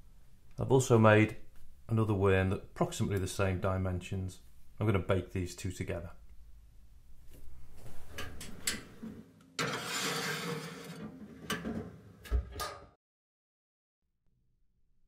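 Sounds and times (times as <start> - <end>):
tile scraping on metal rack: 8.1 - 12.8.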